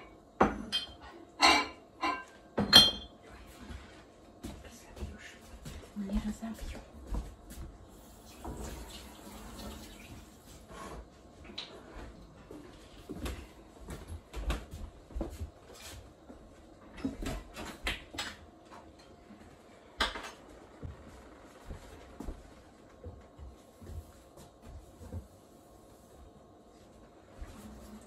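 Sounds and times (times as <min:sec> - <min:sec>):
glass jars and dishes clinking: 0:00.4 - 0:03.2
tap water running: 0:08.0 - 0:10.7.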